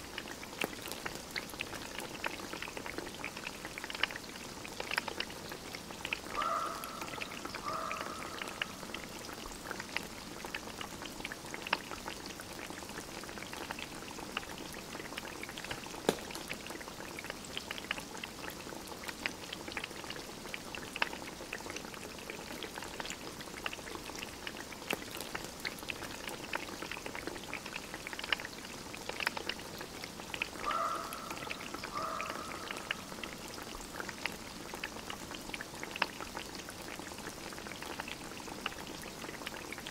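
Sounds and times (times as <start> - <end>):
food bubbling in pot: 0.0 - 39.9
wood fire crackling: 12.6 - 20.0, 22.2 - 30.6.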